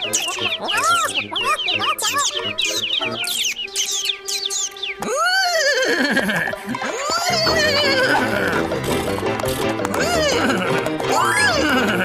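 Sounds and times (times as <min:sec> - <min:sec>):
cartoon chicken clucking: 0:00.0 - 0:03.4
children's background music: 0:00.0 - 0:12.0.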